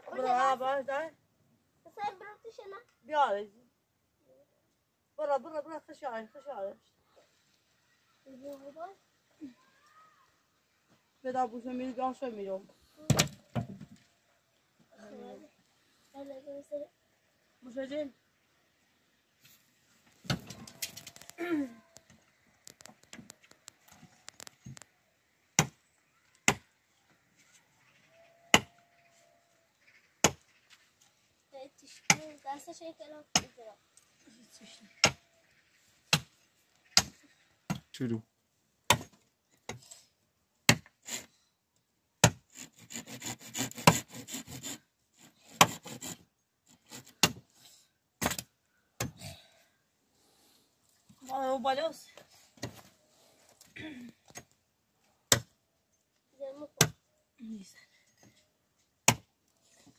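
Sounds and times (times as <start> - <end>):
fast scraping on wood: 41.0 - 41.4, 42.3 - 47.5.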